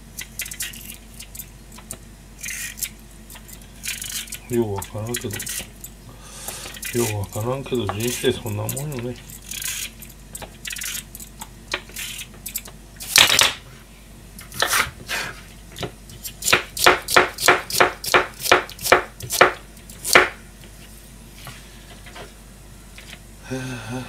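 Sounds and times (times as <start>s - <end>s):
knife chopping on plastic board: 16.5s - 20.4s.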